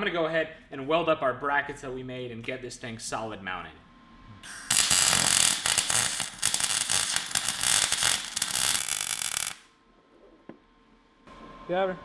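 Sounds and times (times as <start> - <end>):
welder arc crackling: 4.4 - 9.7.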